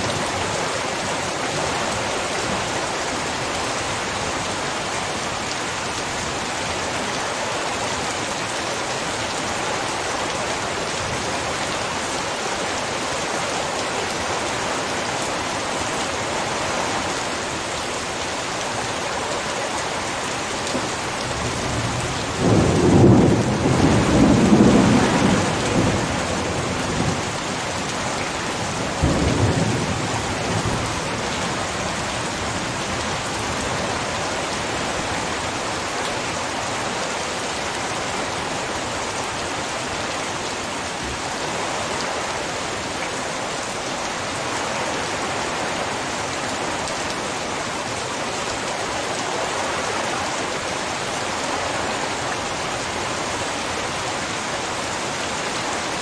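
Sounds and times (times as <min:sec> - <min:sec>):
heavy rain falling: 0:00.0 - 0:56.0
thunder rumbling: 0:21.4 - 0:27.4.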